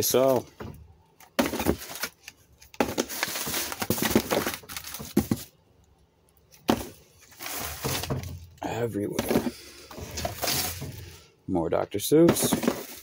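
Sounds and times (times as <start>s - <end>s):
plastic bags rustling: 1.3s - 5.6s, 6.6s - 11.2s, 12.3s - 13.0s.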